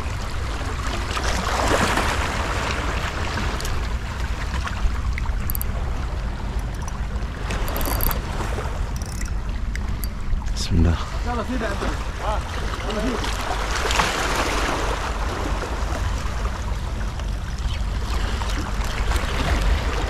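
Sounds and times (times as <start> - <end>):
wind rumble on microphone: 0.0 - 20.0
surf washing on shore: 10.5 - 17.4.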